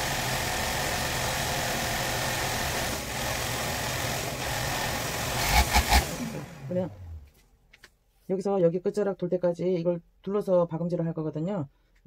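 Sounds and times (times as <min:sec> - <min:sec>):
overlock machine whirring: 0:00.0 - 0:07.3.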